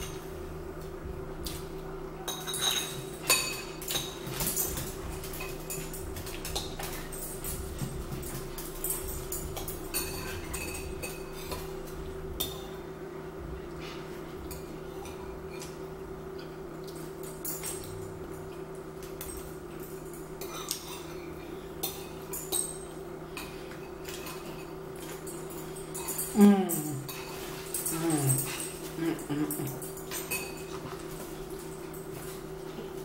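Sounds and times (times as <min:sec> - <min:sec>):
steady low hum: 0:00.0 - 0:33.0
spoons clinking on ceramic bowls: 0:02.2 - 0:11.8, 0:19.0 - 0:32.3.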